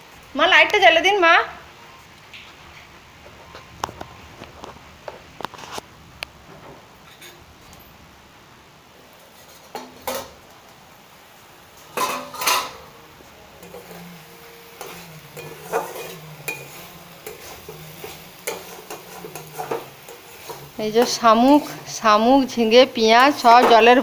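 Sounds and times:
metal lid clinking: 11.9 - 12.9, 14.8 - 21.2
metal spatula scraping pan: 11.9 - 24.0.

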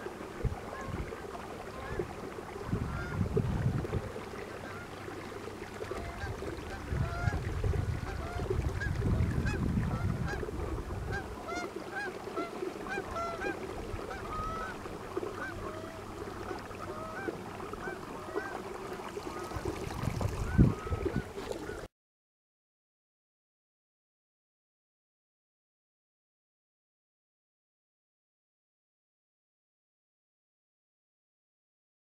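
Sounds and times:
geese honking: 1.8 - 2.0, 2.9 - 3.2, 4.6 - 5.0, 5.9 - 7.4, 8.0 - 10.5, 11.1 - 18.6, 20.4 - 21.8.

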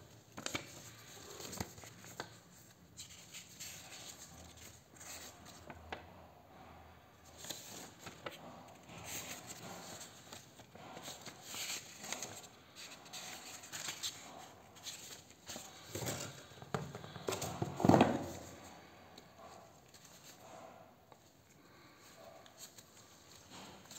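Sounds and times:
paper pages flipping: 0.3 - 5.8, 7.4 - 18.7.

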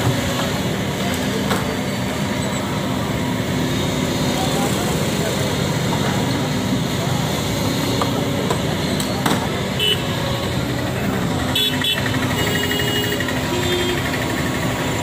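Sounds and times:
excavator running: 0.0 - 15.0
vehicle horn toots: 9.8 - 10.2, 11.5 - 14.2.

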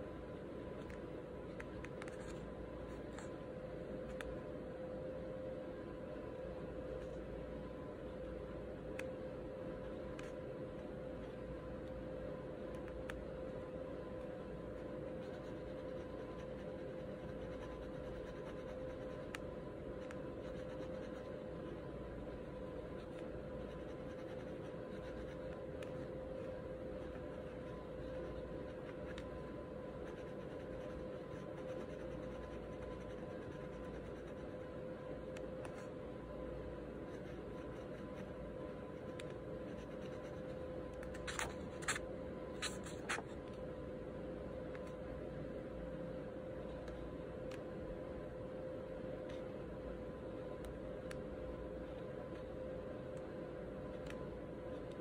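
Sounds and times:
faint steady hum: 0.0 - 55.0
pen scratching on paper: 15.1 - 19.4, 20.0 - 21.8, 22.9 - 26.1, 30.0 - 34.6, 39.0 - 40.5, 42.6 - 43.2.

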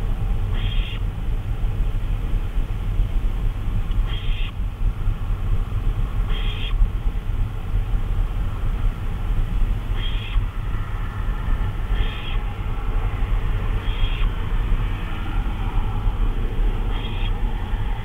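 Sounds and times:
low rumble: 0.0 - 18.0
owl hissing calls: 0.5 - 1.0, 4.0 - 4.6, 6.3 - 6.8, 9.9 - 10.5, 11.9 - 12.5, 13.7 - 14.4, 16.8 - 17.5.

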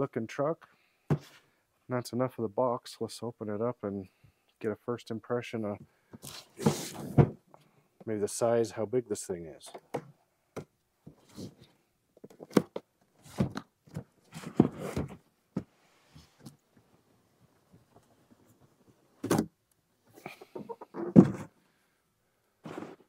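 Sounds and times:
cardboard scraping and rustling: 6.2 - 7.3, 12.3 - 15.2, 22.6 - 23.0.

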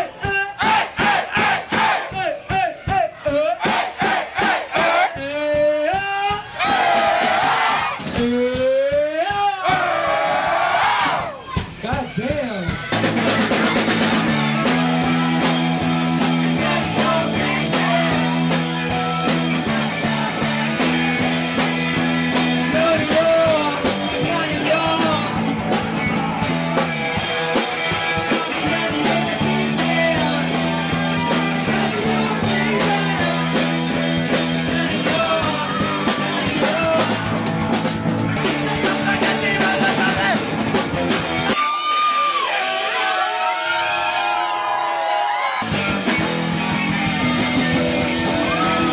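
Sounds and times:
drum kit: 0.0 - 41.6, 45.6 - 48.9
bass guitar line: 12.1 - 41.6, 45.6 - 48.9
electric guitar: 13.0 - 41.6, 45.6 - 48.9
person singing: 13.3 - 21.5, 22.4 - 25.5, 27.9 - 37.5.

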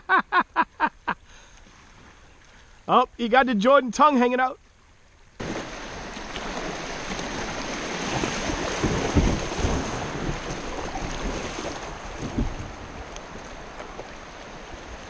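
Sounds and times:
paddle splashes: 1.4 - 3.0, 4.2 - 15.0
river water rushing: 4.8 - 15.0
low thumps: 5.4 - 11.3.

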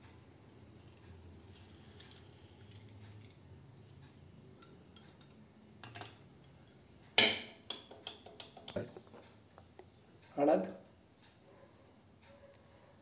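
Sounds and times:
metal utensils clattering: 4.6 - 8.9.

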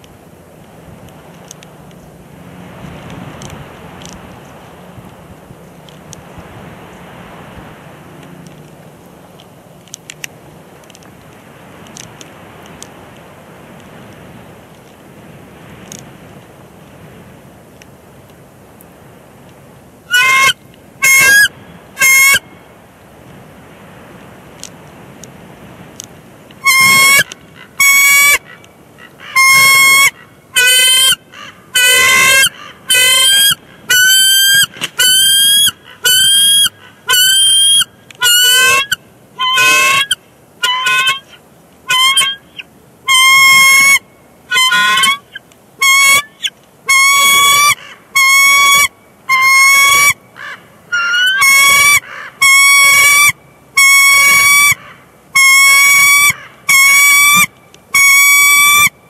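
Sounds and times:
eagles piping calls: 20.1 - 22.6, 26.6 - 59.0.

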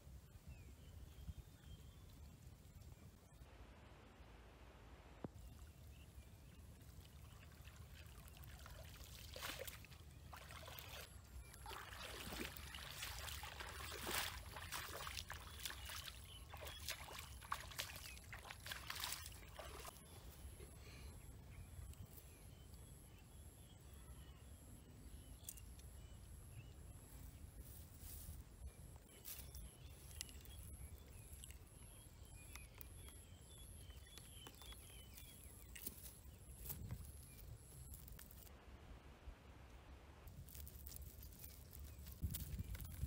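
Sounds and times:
water splashing from wading: 7.3 - 19.9
faint handling sounds: 27.2 - 38.5.

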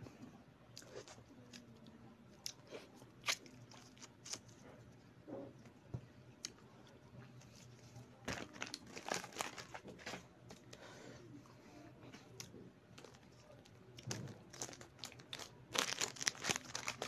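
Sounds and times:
plastic wrapper crackling: 8.3 - 10.1, 13.0 - 17.0.

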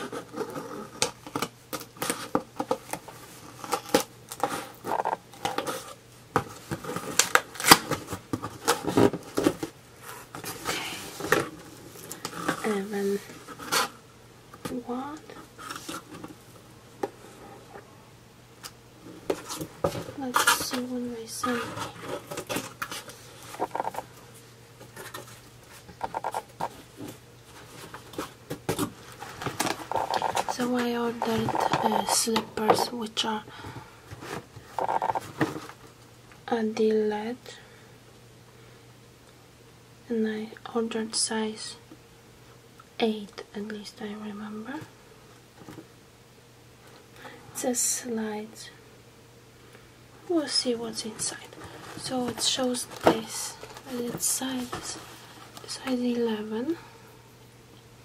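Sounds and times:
cardboard box rustling: 24.8 - 32.9, 51.1 - 55.6.

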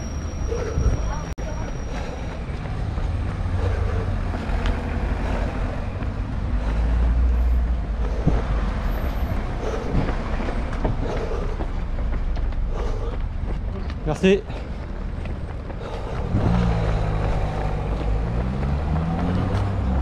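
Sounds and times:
footfalls on pavement: 1.4 - 7.0, 8.0 - 20.0
wind rumble on microphone: 15.3 - 18.7.

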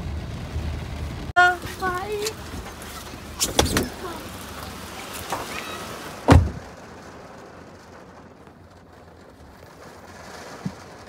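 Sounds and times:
rain hissing: 0.0 - 11.0
clicks and knocks of passenger: 1.6 - 6.8, 10.4 - 11.0
car door shutting with thud: 3.4 - 4.1, 6.2 - 6.7.

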